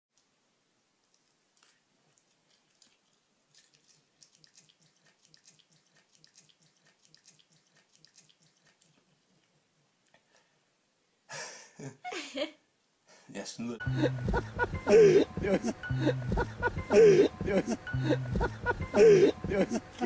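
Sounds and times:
wet chewing: 0:01.0 - 0:10.2
mouth clicks: 0:01.1 - 0:10.2.

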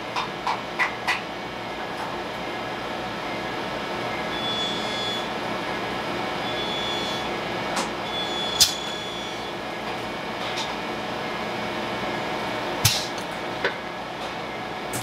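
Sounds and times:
factory machinery noise: 0:00.0 - 0:15.0.

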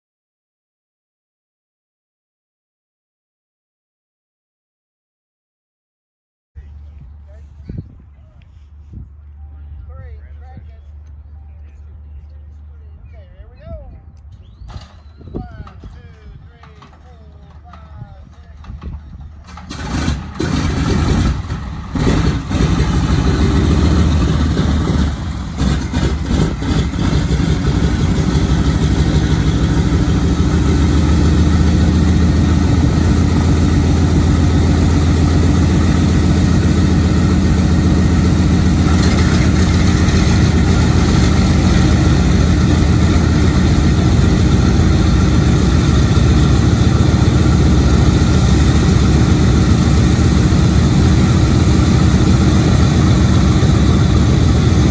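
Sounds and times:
radial engine starting and idling: 0:14.5 - 0:54.9.

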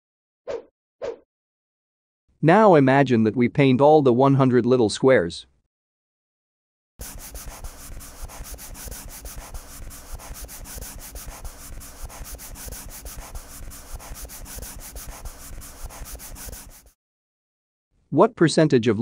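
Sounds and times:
marker scribbling on paper: 0:07.0 - 0:17.0.

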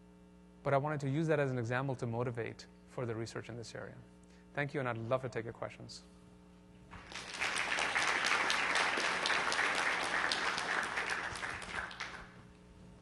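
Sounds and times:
audience applauding: 0:06.9 - 0:12.4.

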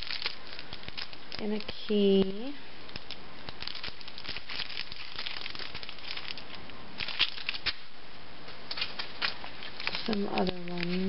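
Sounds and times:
plastic packaging crinkling: 0:00.0 - 0:11.0.

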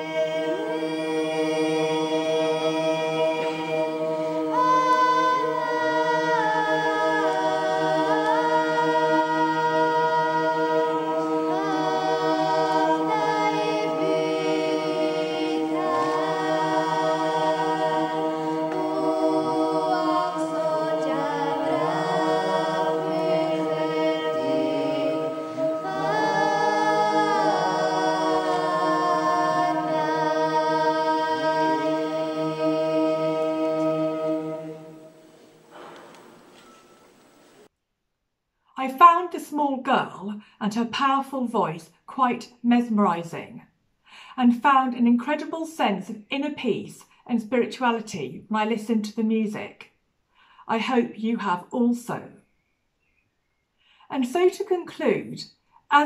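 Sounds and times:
girl singing chant: 0:00.0 - 0:01.8, 0:03.2 - 0:34.8
drone of lower voices: 0:00.0 - 0:36.2.

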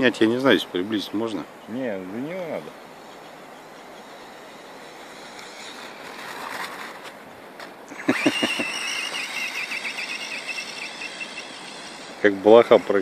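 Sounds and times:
faint steady hiss: 0:00.0 - 0:13.0
electric motor whine: 0:04.0 - 0:07.1, 0:08.0 - 0:13.0.

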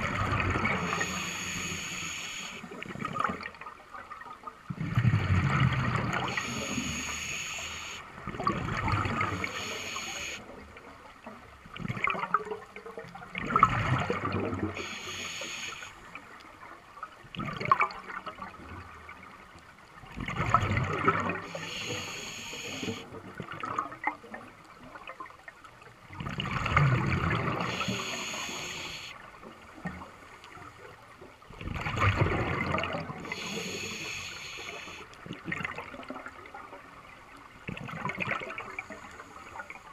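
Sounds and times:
gurgling underwater bubbles: 0:00.0 - 0:03.6, 0:04.6 - 0:10.8, 0:11.6 - 0:15.6, 0:17.3 - 0:18.9, 0:20.0 - 0:25.1, 0:26.1 - 0:30.0, 0:31.5 - 0:36.8, 0:37.6 - 0:39.3
regulator inhalation hiss: 0:00.6 - 0:02.8, 0:06.2 - 0:08.1, 0:09.3 - 0:10.4, 0:14.7 - 0:16.1, 0:21.4 - 0:23.0, 0:27.6 - 0:29.2, 0:33.2 - 0:35.1.

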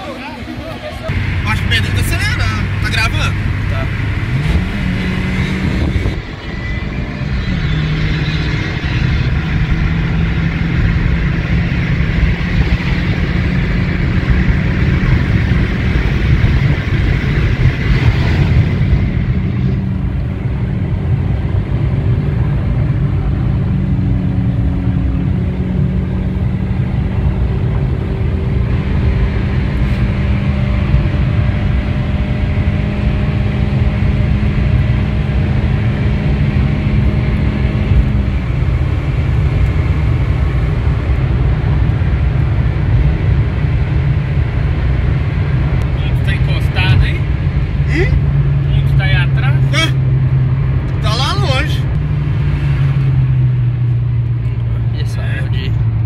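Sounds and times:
car engine drone: 0:00.0 - 0:56.0
tyre and road noise: 0:00.0 - 0:56.0.

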